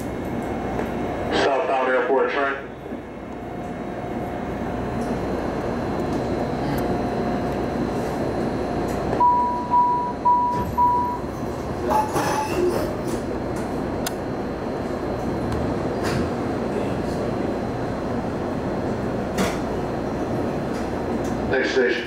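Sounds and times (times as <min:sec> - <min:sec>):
train ventilation hum: 0:00.0 - 0:22.0
door-closing warning beeps: 0:09.2 - 0:11.3.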